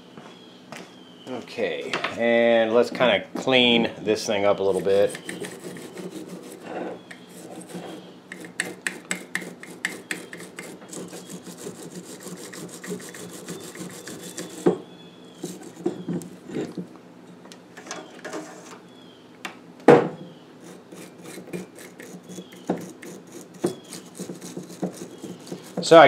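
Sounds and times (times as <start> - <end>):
brush scrubbing metal: 4.3 - 14.6, 15.4 - 16.0, 20.6 - 26.0.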